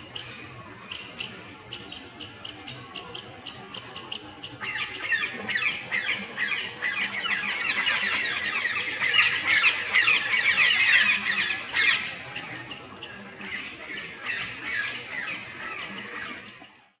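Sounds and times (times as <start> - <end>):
parakeets squawking: 4.5 - 12.8.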